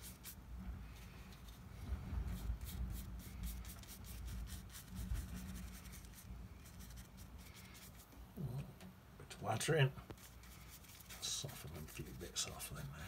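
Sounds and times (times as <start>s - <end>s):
paintbrush scratching on paper: 0.0s - 0.4s, 2.3s - 8.1s, 10.1s - 12.9s.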